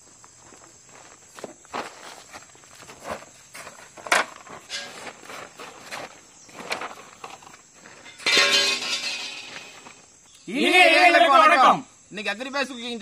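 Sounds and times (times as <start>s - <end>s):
footsteps: 0.0s - 10.3s
metal trays knocking on tarp: 8.0s - 9.9s
struck metal ringing: 8.0s - 9.9s.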